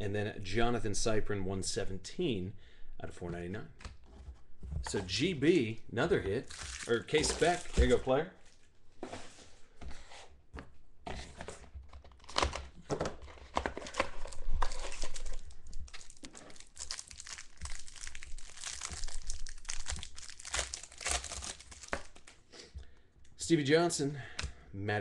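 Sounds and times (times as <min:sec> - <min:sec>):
plastic wrapper tearing and crinkling: 0:06.4 - 0:08.7, 0:12.0 - 0:22.4
cards being handled: 0:06.5 - 0:08.1, 0:10.6 - 0:22.4.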